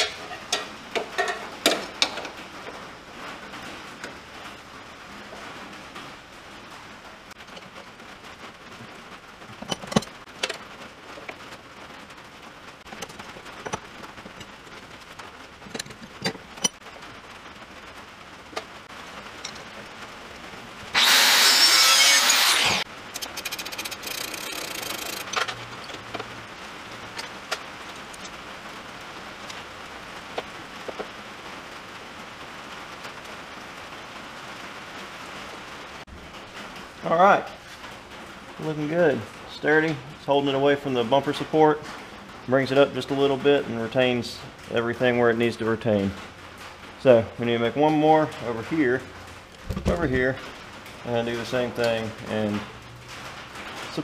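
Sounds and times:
power tool running: 0:20.9 - 0:25.3
metal parts and tools clicking: 0:21.0 - 0:26.2.

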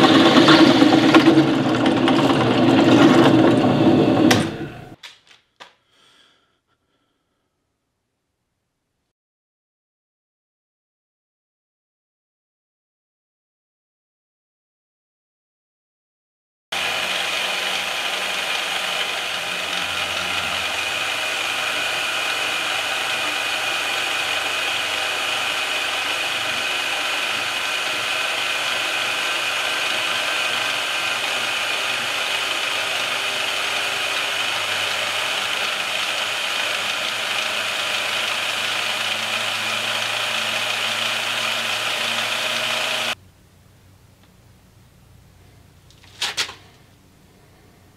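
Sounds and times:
band saw cutting steel: 0:00.0 - 0:05.0, 0:16.8 - 0:43.2.

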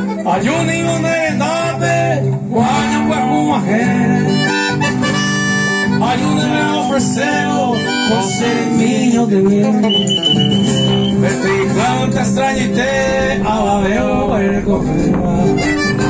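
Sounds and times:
piano accordion melody: 0:00.0 - 0:00.4, 0:04.2 - 0:09.0
strummed guitars: 0:00.0 - 0:16.0.

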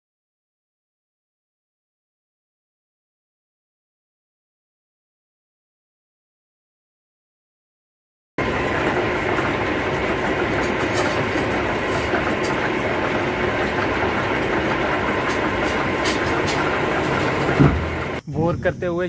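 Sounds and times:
engine running steadily: 0:08.4 - 0:18.2.

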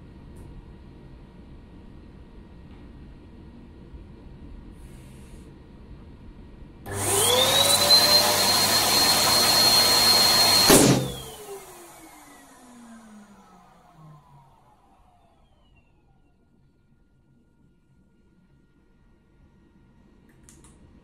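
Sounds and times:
electric pump motor whine: 0:06.9 - 0:16.1
balloon bursting pop: 0:10.6 - 0:11.2.

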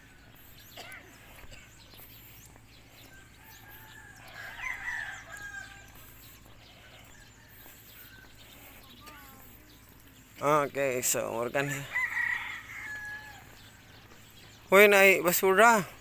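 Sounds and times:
rooster crowing: 0:03.0 - 0:06.3, 0:11.6 - 0:13.8.

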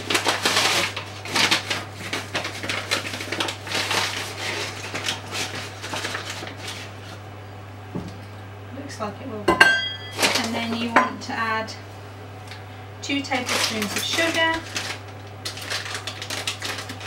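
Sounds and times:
paper bag rustling: 0:00.0 - 0:07.2, 0:10.2 - 0:10.7, 0:13.2 - 0:17.0.

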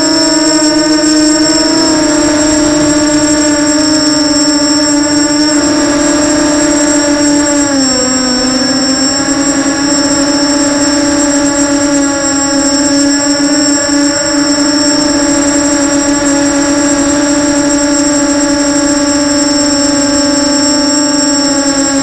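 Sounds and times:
quadcopter motors buzzing: 0:00.0 - 0:22.0.

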